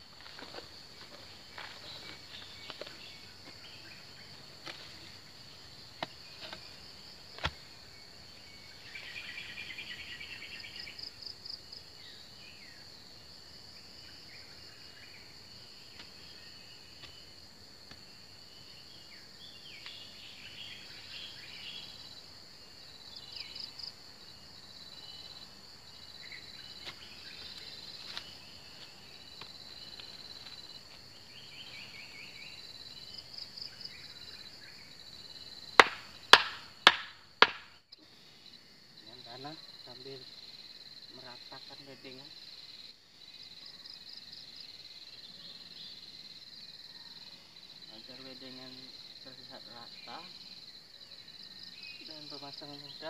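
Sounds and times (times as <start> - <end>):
insect chorus buzzing: 0.0 - 53.0
sharp knocks: 35.8 - 37.7.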